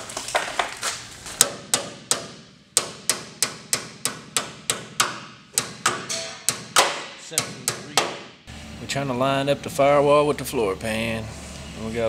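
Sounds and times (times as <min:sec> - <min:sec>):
hammer tapping sheet metal: 0:01.4 - 0:08.4.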